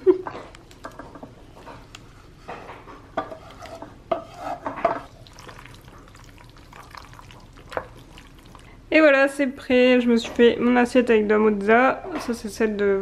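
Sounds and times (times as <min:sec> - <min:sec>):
spatula scraping metal pans: 0:01.0 - 0:05.1.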